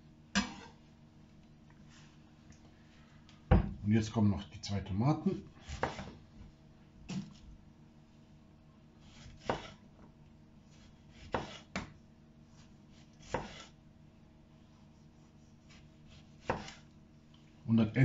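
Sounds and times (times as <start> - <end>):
knife knocking on cutting board: 3.5 - 3.8.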